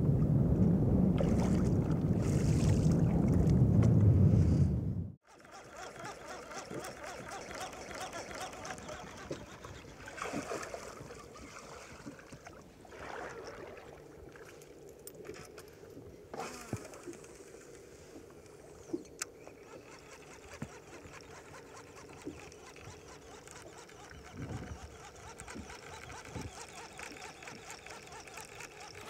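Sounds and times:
water lapping around boat: 1.2 - 4.0, 5.2 - 29.0
fishing reel clicks and knocks: 19.0 - 29.0.

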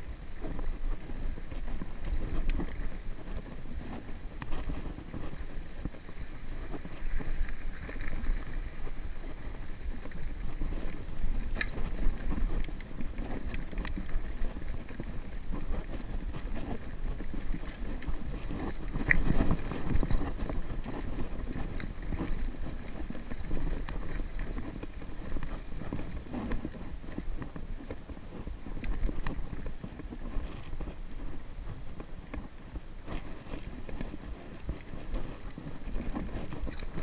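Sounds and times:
wind rumbling on microphone: 0.0 - 37.0
bike rattling over rocks: 0.4 - 37.0.

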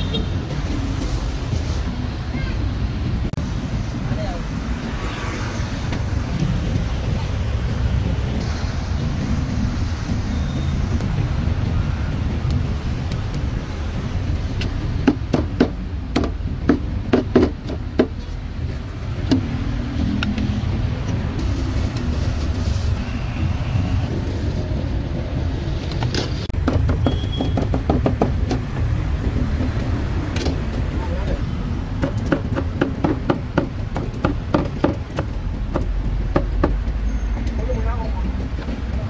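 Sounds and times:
street traffic rumble: 0.0 - 39.0
sharp clicks and knocks: 25.9 - 30.9, 32.0 - 37.6.

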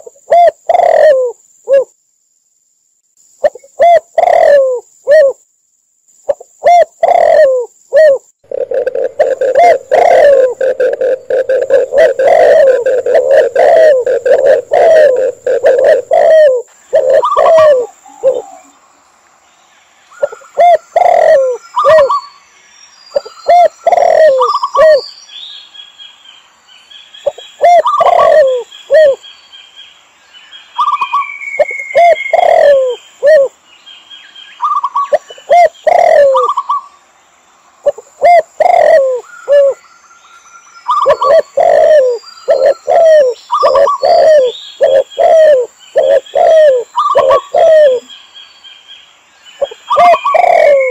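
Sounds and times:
doves cooing: 0.0 - 1.9, 3.4 - 5.4, 6.6 - 18.8, 20.1 - 22.3, 23.2 - 25.0, 27.2 - 29.2, 30.8 - 33.5, 34.6 - 36.8, 37.8 - 39.8, 40.9 - 48.1, 49.6 - 50.9
higher bird chirps and trills: 8.4 - 37.2, 37.8 - 50.9.

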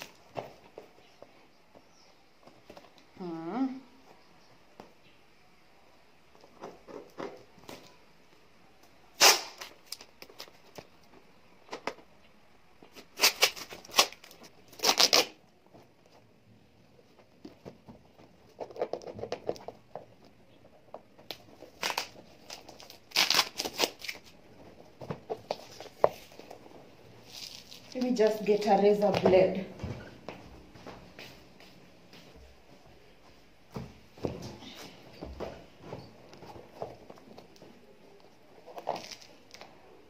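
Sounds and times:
tape and plastic tearing: 9.2 - 10.9, 12.9 - 15.4, 21.3 - 24.4.

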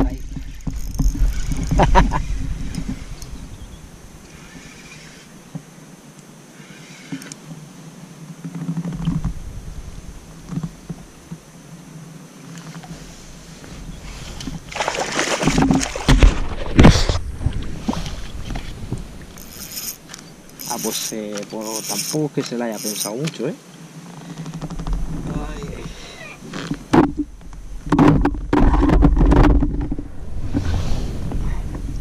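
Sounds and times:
fish splashing at water surface: 14.7 - 16.6
low rumble: 27.2 - 32.0.

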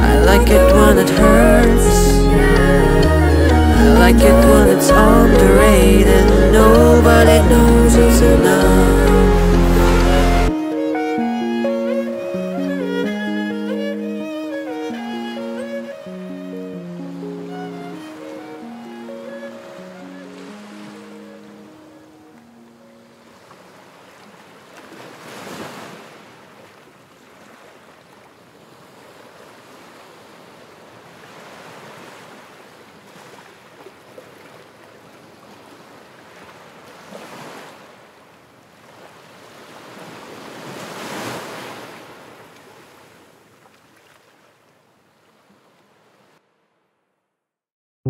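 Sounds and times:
ocean waves washing in: 0.0 - 22.4, 34.4 - 43.5.

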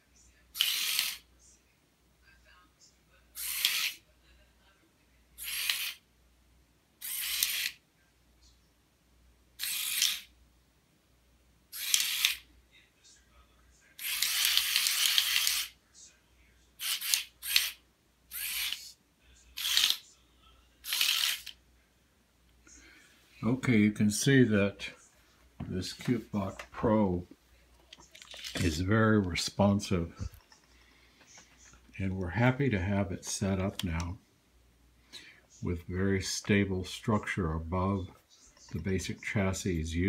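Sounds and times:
small motors whirring: 0.6 - 1.2, 3.4 - 4.0, 7.0 - 7.8, 9.6 - 10.3, 11.8 - 12.4, 14.0 - 15.7, 16.8 - 18.9, 19.6 - 20.0, 20.8 - 21.5.

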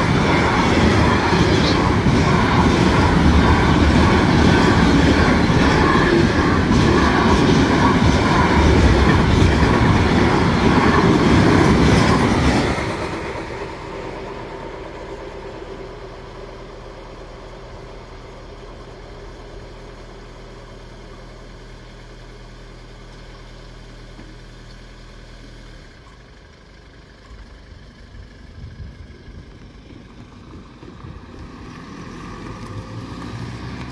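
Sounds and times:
freight train rumbling and clattering: 0.0 - 18.4, 28.2 - 33.9.

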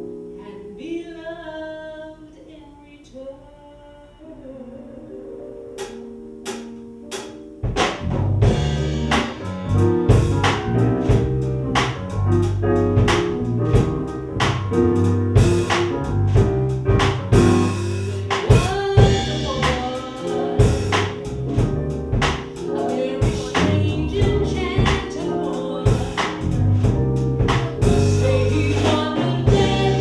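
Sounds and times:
electric keyboard: 0.0 - 0.8, 4.7 - 30.0
woman singing: 0.4 - 5.8, 18.2 - 21.2, 22.6 - 26.5, 27.8 - 30.0
drum kit: 5.8 - 30.0.

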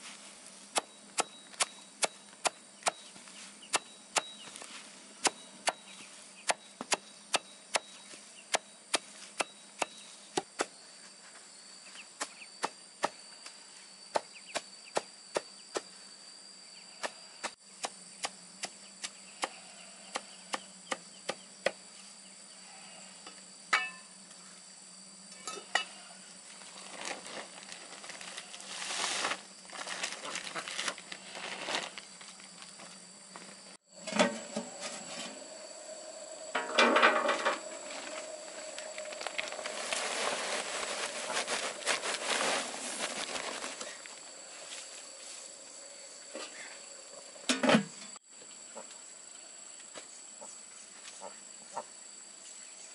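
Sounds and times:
insects buzzing: 0.0 - 52.9
scraping rustle: 26.5 - 35.5, 36.8 - 45.5.

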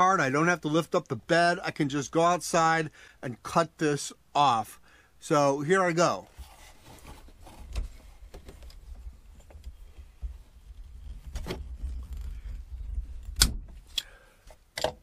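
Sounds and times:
pipe cutter clicks and snaps: 13.2 - 14.2.

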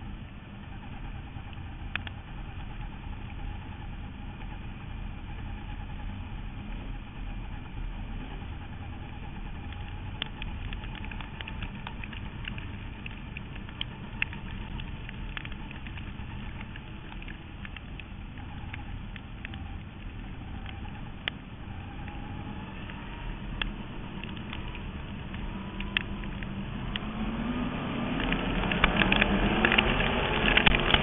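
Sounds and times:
racing car engine: 0.0 - 31.0
rushing wind noise: 4.0 - 31.0
dirt pelting car: 7.1 - 31.0.

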